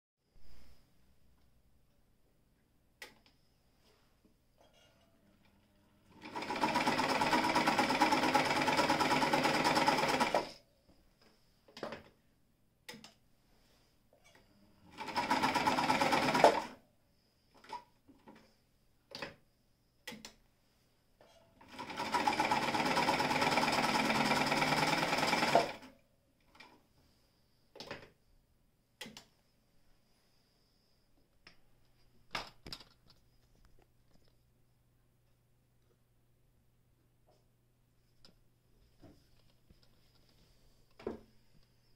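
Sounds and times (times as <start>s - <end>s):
sewing machine stitching: 6.1s - 10.6s, 14.9s - 16.8s, 21.6s - 25.9s
small clicks and knocks: 31.4s - 34.4s.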